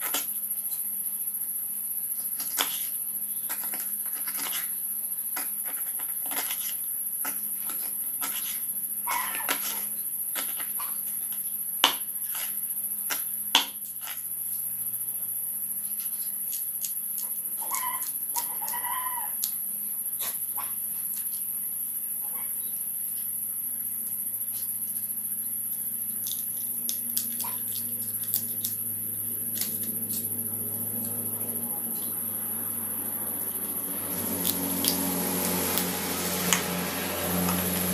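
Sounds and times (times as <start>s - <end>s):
scissors snipping: 29.5s - 30.3s, 34.4s - 35.0s.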